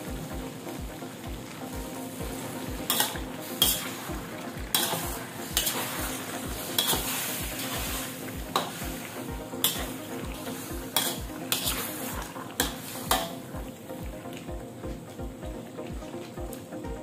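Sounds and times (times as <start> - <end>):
chicken sizzling in a wok: 0.0 - 14.3
metal spatula scraping a pan: 2.8 - 4.1, 4.7 - 13.4.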